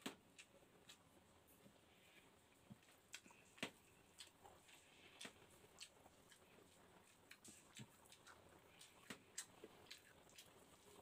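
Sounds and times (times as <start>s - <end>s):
chewing noodles: 2.8s - 11.0s.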